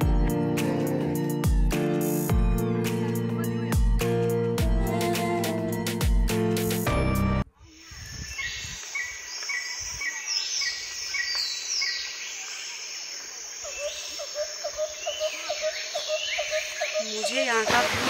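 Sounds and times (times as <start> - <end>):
bird chirps: 7.6 - 17.5.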